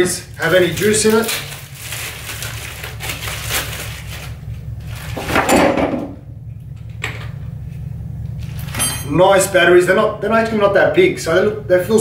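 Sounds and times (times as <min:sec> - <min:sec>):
scraping rustle: 0:00.4 - 0:05.4.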